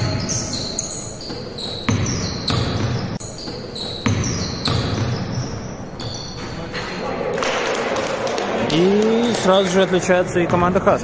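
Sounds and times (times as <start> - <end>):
basketball bouncing on hardwood floor: 1.2 - 6.3.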